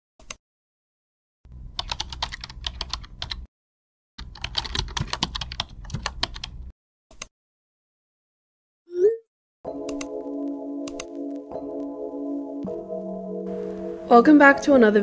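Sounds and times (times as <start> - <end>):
typing on computer keyboard: 1.8 - 3.5, 4.2 - 6.6.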